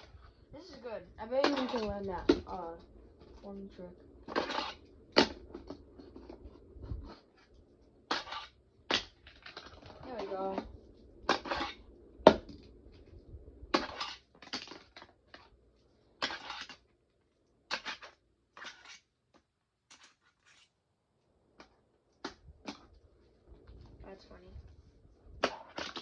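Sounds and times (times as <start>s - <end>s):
wheels scraping and rolling: 4.2s - 13.1s, 13.7s - 15.5s, 16.2s - 16.9s, 17.7s - 19.1s, 25.4s - 26.0s.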